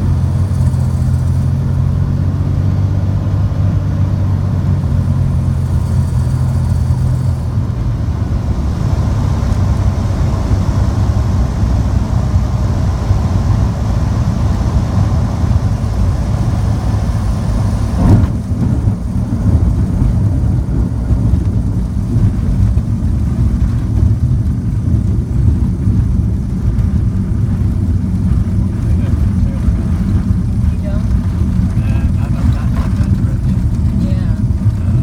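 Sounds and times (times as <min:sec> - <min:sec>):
plane engine and propeller drone: 0:00.0 - 0:35.0
wheels touching down thump: 0:17.8 - 0:26.0.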